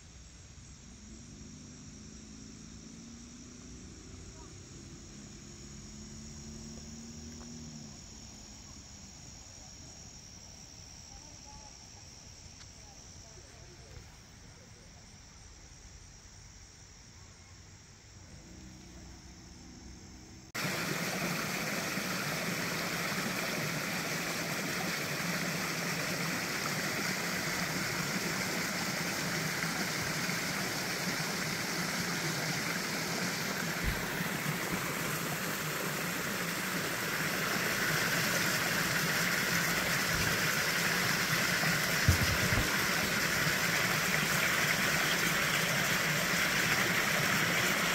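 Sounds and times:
faint thin insect sound: 0:00.0 - 0:47.9
running water in rocky creek: 0:20.6 - 0:47.9.

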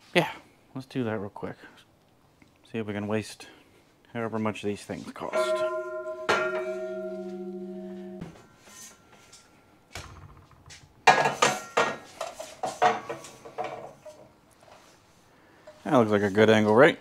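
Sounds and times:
metallic clanks and rattles: 0:05.3 - 0:09.4, 0:10.0 - 0:14.2
steel tube ringing: 0:05.3 - 0:11.8.

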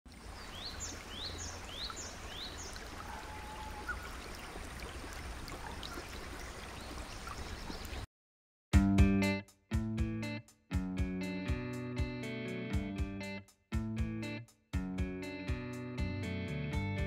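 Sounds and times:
bird chirping: 0:00.4 - 0:04.1, 0:06.7 - 0:08.1.

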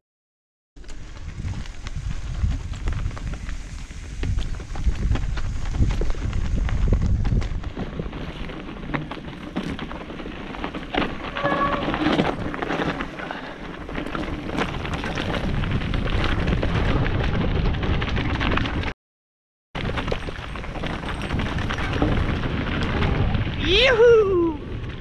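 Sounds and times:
bike rattling with sharp knocks: 0:00.8 - 0:18.9, 0:19.8 - 0:23.6
wind rumbling on microphone: 0:00.8 - 0:18.9, 0:19.8 - 0:25.0
tyres rolling over leaf litter: 0:08.2 - 0:16.6.

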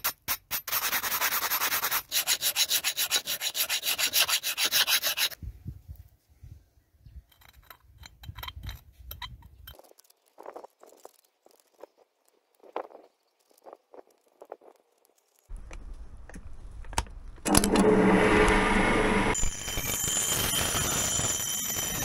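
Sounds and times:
steel tool scratching metal: 0:00.0 - 0:05.4
stone rasping on steel axe head: 0:02.1 - 0:05.4.

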